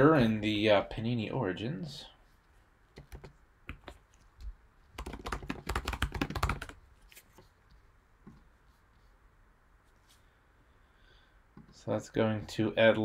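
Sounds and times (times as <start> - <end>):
typing on computer keyboard: 5.0 - 6.8.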